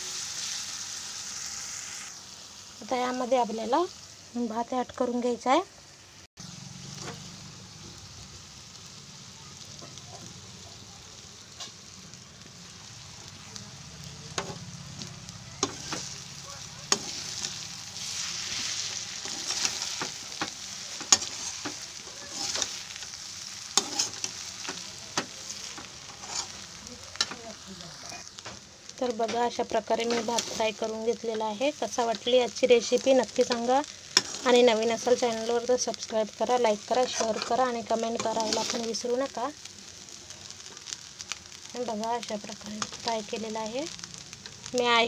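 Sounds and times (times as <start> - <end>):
rice sizzling in a pan: 0.0 - 45.0.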